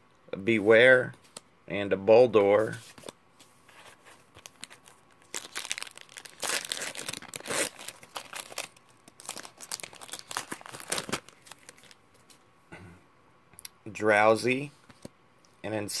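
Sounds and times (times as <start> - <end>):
foil wrapper tearing and crinkling: 4.4 - 12.0.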